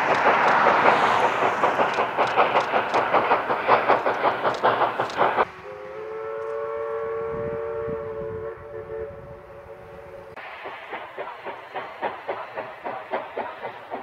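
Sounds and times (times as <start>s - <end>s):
steam locomotive exhaust chuffs: 0.0s - 14.0s
steam whistle blast: 5.4s - 10.4s.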